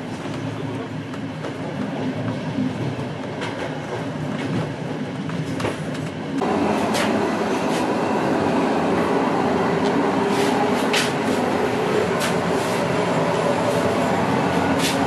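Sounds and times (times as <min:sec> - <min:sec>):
train rumbling at speed: 0:00.0 - 0:15.0
electric locomotive tone: 0:06.4 - 0:14.8.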